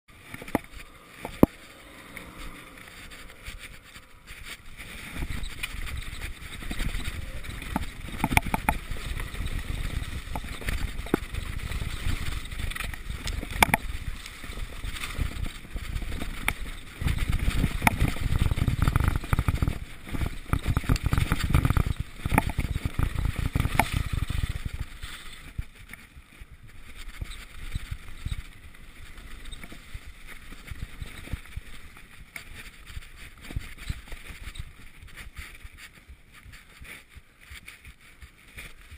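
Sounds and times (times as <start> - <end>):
bike knocking and rattling: 0.1 - 38.9
wind rushing over microphone: 0.3 - 25.8.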